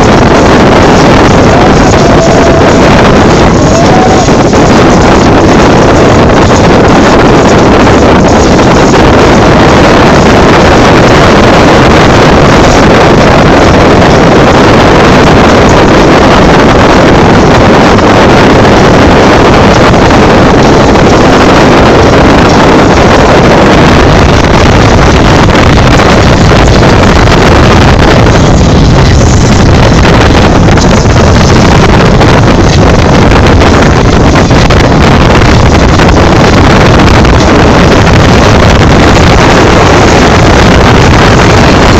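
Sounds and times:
boat engine running: 0.0s - 41.9s
wind noise on microphone: 0.0s - 41.9s.

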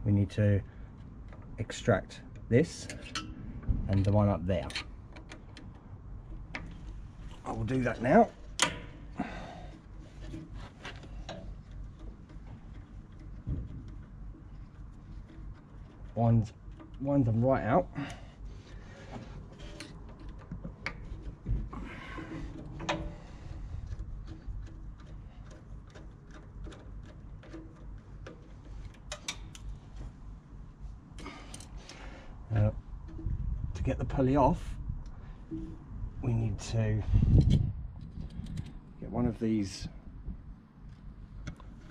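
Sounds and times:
low background rumble: 0.0s - 41.9s
small metal ticks and clicks: 0.9s - 30.1s, 31.2s - 32.1s.

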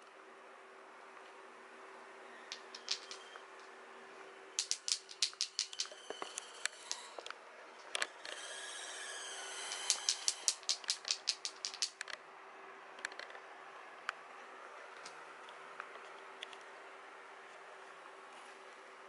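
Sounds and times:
toy knocking on laminate floor: 2.5s - 3.2s, 4.6s - 6.0s, 9.7s - 12.1s
kitten claws clicking on floor: 2.5s - 3.3s, 4.6s - 7.3s, 9.7s - 12.2s.

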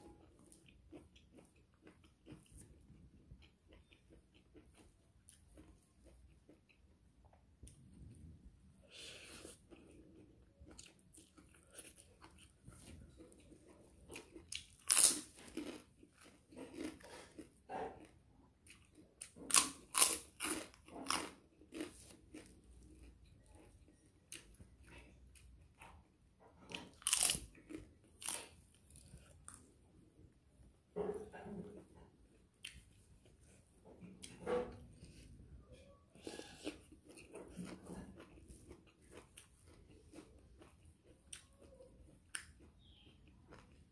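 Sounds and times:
chewing noodles: 0.2s - 8.1s, 8.9s - 29.7s, 36.1s - 43.9s
crunching crackers: 9.0s - 26.0s, 26.6s - 29.7s, 36.2s - 43.9s.

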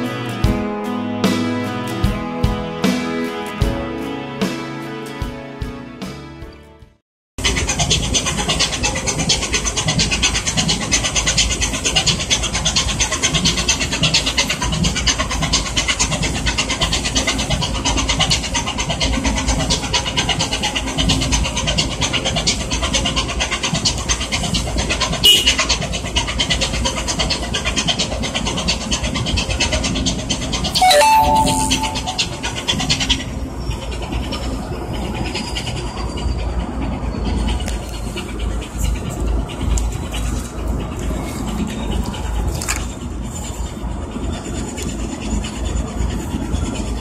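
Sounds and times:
short high-pitched call: 30.8s - 32.8s.

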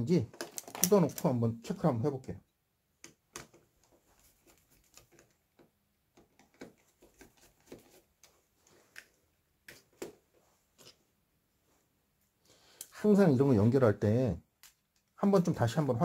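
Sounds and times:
wires being handled: 0.2s - 1.4s, 3.0s - 11.1s.

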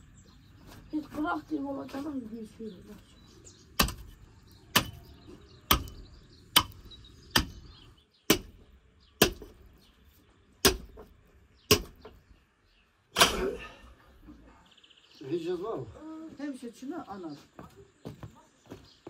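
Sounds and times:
hatchet chopping through bone: 3.7s - 9.7s, 10.6s - 12.2s.

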